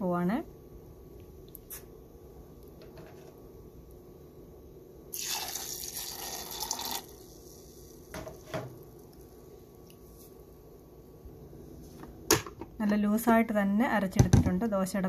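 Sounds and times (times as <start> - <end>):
water poured into blender jar: 5.1 - 7.2.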